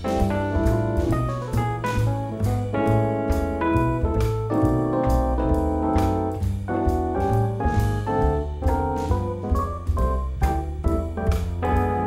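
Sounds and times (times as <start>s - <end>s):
jazz piano: 0.0s - 12.0s
walking double bass: 0.0s - 12.0s.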